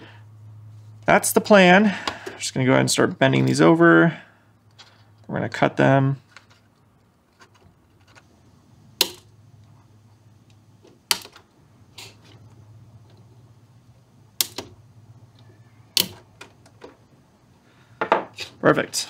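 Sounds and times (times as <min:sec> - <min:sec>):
pliers snipping wire: 0:14.4 - 0:14.7, 0:16.0 - 0:16.3.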